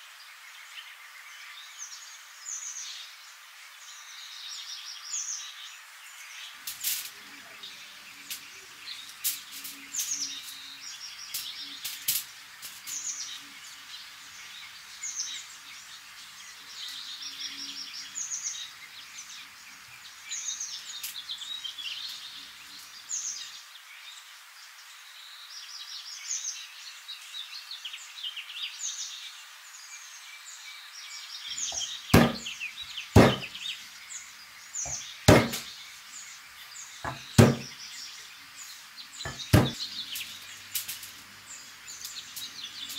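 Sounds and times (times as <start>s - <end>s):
small birds chirping: 0.0s - 42.9s
knife knocking on cutting board: 32.2s - 32.5s, 33.2s - 33.5s, 34.9s - 35.6s, 37.1s - 37.7s, 39.3s - 39.8s.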